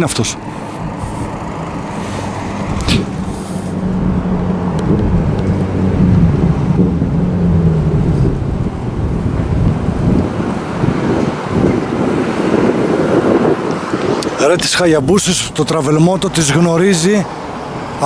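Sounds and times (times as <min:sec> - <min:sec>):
motorcycle riding past: 0:00.4 - 0:14.2.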